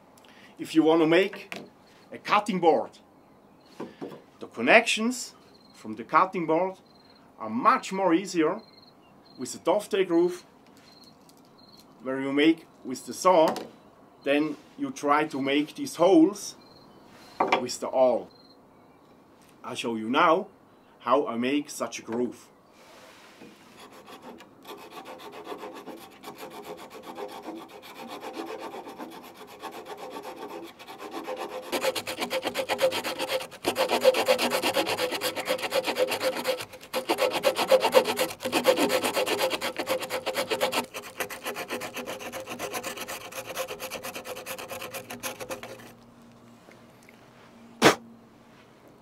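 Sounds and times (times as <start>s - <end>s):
saw rasping through branch: 23.6s - 46.0s
sharp knock: 47.8s - 48.0s.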